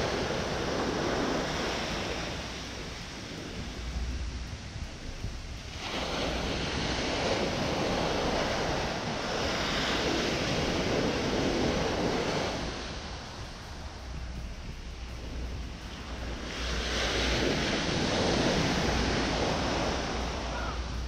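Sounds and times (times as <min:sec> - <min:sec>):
surf breaking on a beach: 0:00.0 - 0:21.0.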